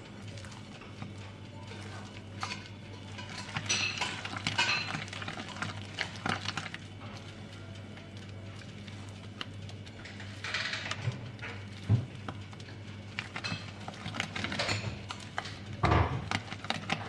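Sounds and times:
spatula stirring thick batter: 0.0s - 17.0s.

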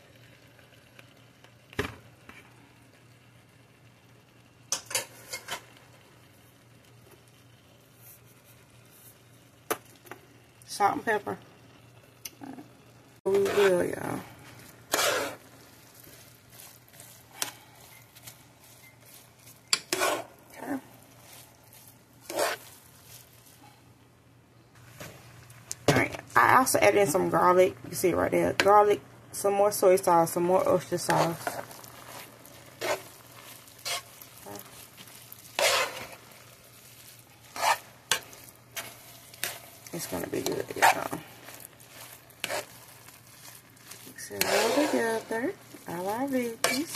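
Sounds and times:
faint sizzle of frying: 0.0s - 46.9s
spoon scraping food in pan: 4.7s - 5.8s, 13.3s - 23.8s, 29.8s - 46.9s.

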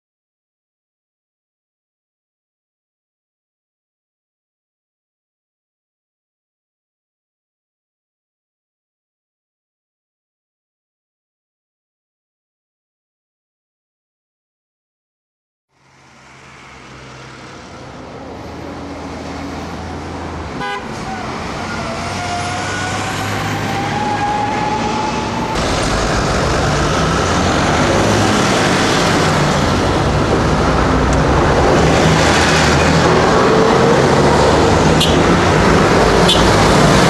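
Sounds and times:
city road traffic: 15.7s - 37.0s
car horns: 20.6s - 25.6s, 34.8s - 37.0s.

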